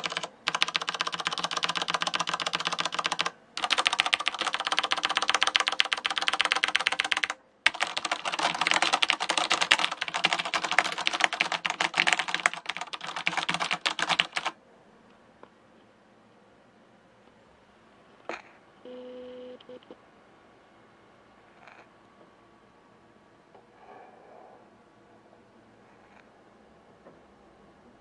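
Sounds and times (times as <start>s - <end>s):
mechanical keyboard typing: 0.0s - 14.6s.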